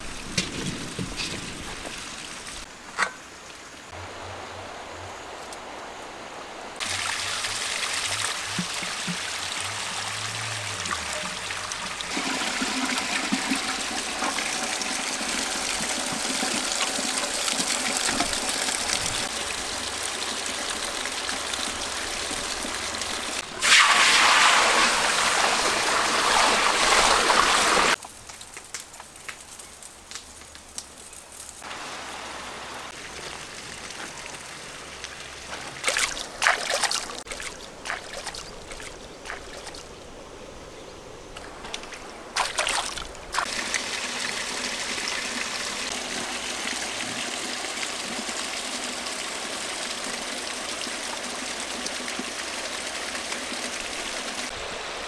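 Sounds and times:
flowing water rushing: 1.9 - 28.0, 31.6 - 40.0, 41.4 - 55.0
water splashing into metal wok: 23.5 - 28.0.

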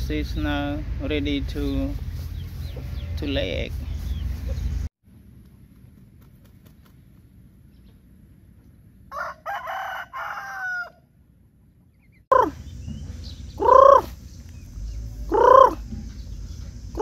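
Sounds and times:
chickens calling: 1.6 - 4.9, 6.2 - 17.0
rooster crowing: 9.1 - 11.2.

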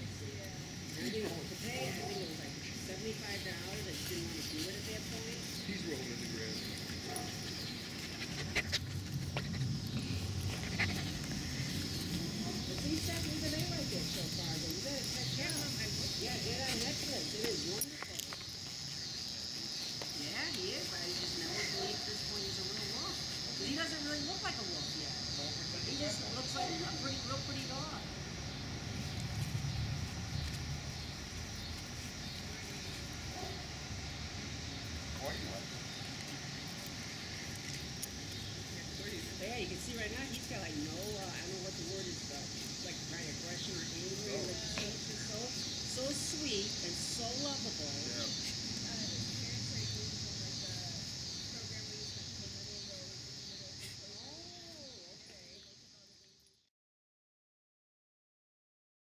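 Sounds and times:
steady high hiss: 0.0 - 56.4
puppy panting: 6.5 - 14.1.

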